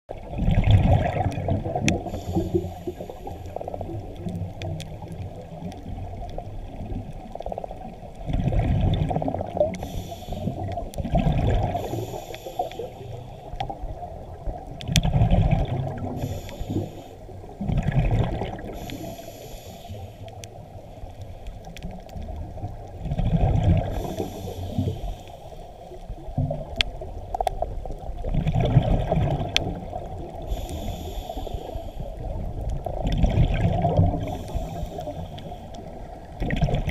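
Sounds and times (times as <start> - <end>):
gurgling exhaled bubbles: 0.1 - 19.8, 21.5 - 25.2, 25.9 - 36.9
diver breathing through regulator: 2.0 - 3.8, 9.6 - 10.8, 11.6 - 13.6, 16.1 - 17.3, 18.5 - 20.4, 23.8 - 26.0, 30.3 - 32.4, 34.0 - 36.1.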